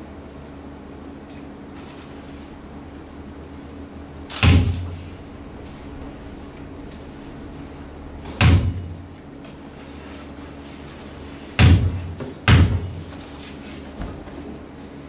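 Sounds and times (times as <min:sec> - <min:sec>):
faint steady hum: 0:00.0 - 0:15.0
heavy echoing thuds: 0:03.5 - 0:09.8, 0:11.6 - 0:13.1.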